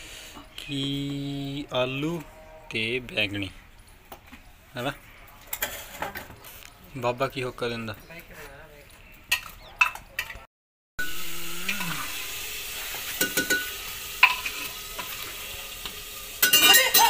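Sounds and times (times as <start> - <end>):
sizzling hiss: 11.0 - 17.0
ladle clinking against steel pot: 13.2 - 14.7, 16.4 - 17.0.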